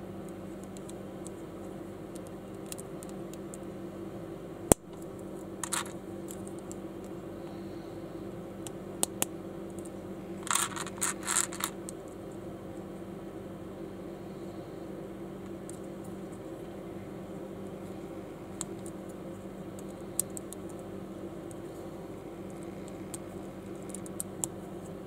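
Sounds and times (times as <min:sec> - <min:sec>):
steady low hum: 0:00.0 - 0:25.0
plastic bricks clicking and rattling: 0:05.6 - 0:06.5, 0:10.4 - 0:11.8.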